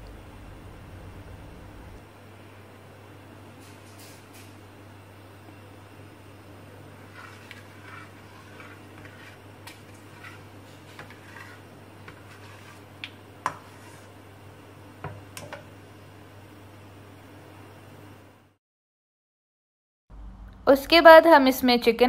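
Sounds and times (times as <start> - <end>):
low hum: 0.0 - 2.8, 20.1 - 21.2.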